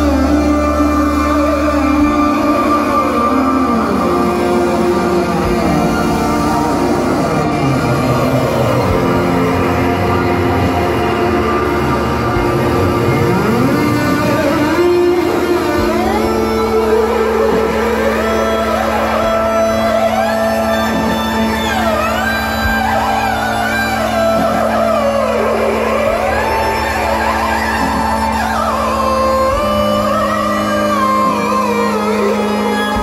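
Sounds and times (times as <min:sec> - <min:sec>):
rock band playing slow instrumental: 0:00.0 - 0:33.0.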